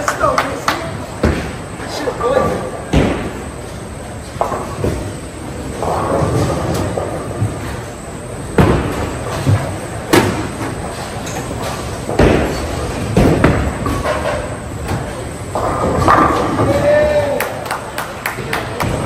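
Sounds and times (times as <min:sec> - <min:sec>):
bowling balls rolling: 0:00.8 - 0:19.0
bowling balls crashing into pins: 0:02.8 - 0:03.6, 0:04.3 - 0:07.8, 0:08.5 - 0:17.1.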